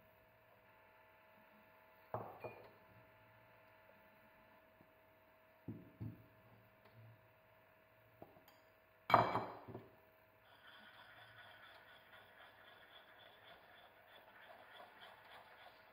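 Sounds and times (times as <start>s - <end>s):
ceramic bowls knocking on saucepan: 9.1s - 9.8s
whisk scraping in pan: 10.4s - 15.9s.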